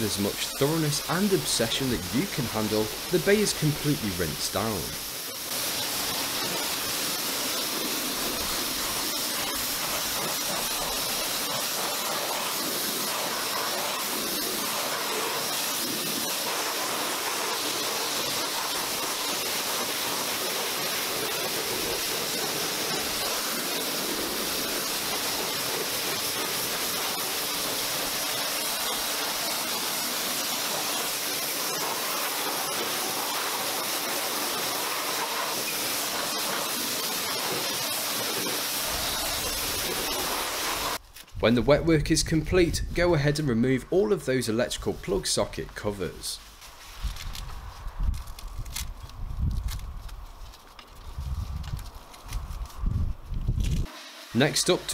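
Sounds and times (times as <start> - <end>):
pressure washer spray hissing: 0.0 - 41.0, 53.8 - 54.9
water splashing off engine: 5.5 - 41.0.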